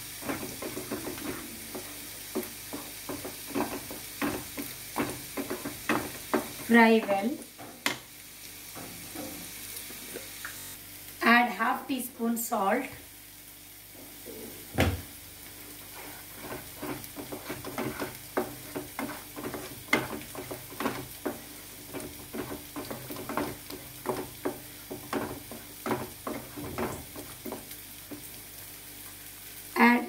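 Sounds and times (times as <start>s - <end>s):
masala sizzling: 0.0s - 30.0s
knock on a pan: 14.8s - 15.1s
plastic spatula scraping a pan: 15.9s - 27.6s.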